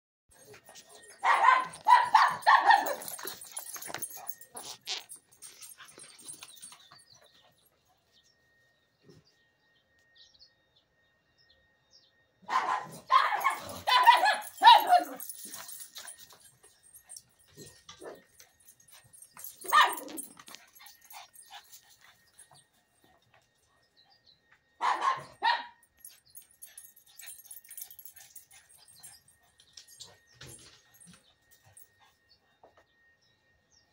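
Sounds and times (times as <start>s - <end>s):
dog barking: 1.2s - 3.2s, 12.4s - 15.2s, 19.6s - 20.2s, 24.8s - 25.8s.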